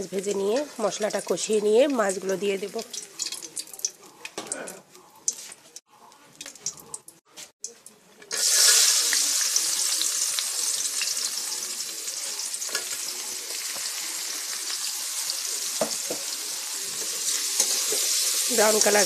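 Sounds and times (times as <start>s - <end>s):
onions sizzling in hot oil: 0.0s - 4.5s, 8.3s - 19.0s.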